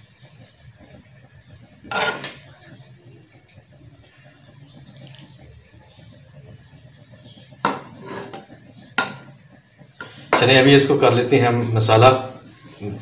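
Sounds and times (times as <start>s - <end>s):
spoon scraping glass dish: 1.9s - 2.3s, 8.0s - 8.4s.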